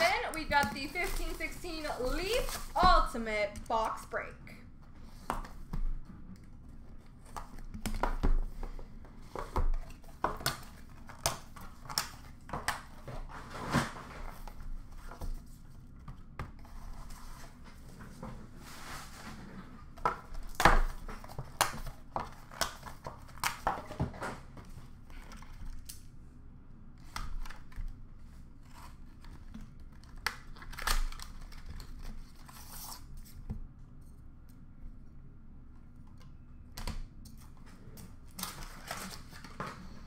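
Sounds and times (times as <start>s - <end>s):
cardboard packaging rustling: 0.0s - 3.9s, 38.2s - 40.0s.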